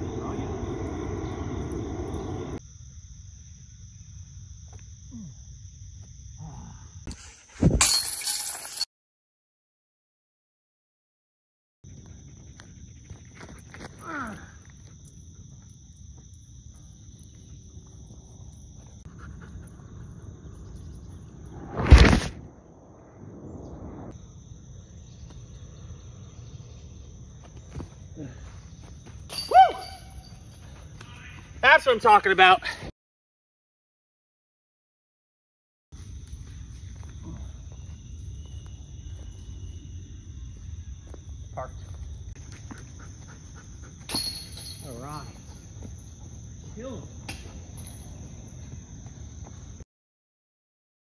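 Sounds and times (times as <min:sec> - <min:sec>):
insects droning: 0:00.0 - 0:07.8, 0:11.8 - 0:32.9, 0:36.0 - 0:49.8
low rumble: 0:19.9 - 0:24.3.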